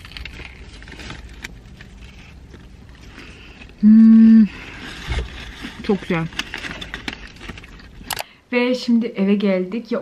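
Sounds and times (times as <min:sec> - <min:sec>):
faint clicks and crinkles: 0:00.0 - 0:03.8, 0:04.6 - 0:08.3
woman humming mmm: 0:03.8 - 0:04.6.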